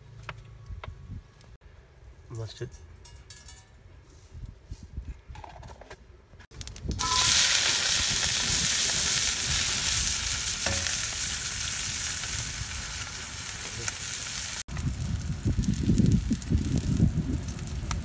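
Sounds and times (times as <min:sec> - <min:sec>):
onions sizzling in hot oil: 0:06.8 - 0:18.0.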